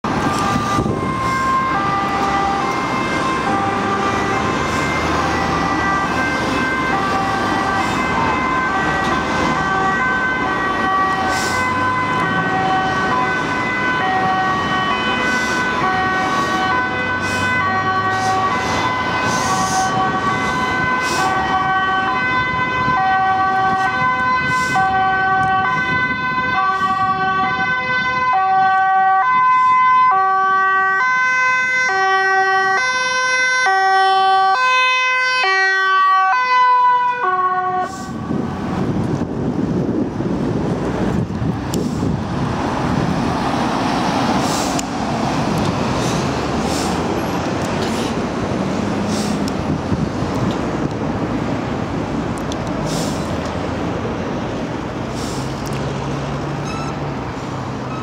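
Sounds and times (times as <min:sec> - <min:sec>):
ambulance two-tone siren: 0:00.0 - 0:39.3, 0:56.5 - 0:57.2
road traffic noise: 0:00.0 - 0:58.0.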